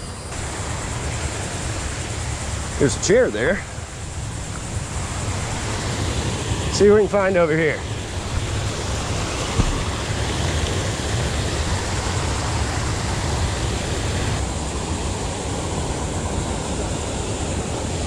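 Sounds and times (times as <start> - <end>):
water rushing over weir: 0.0 - 18.0.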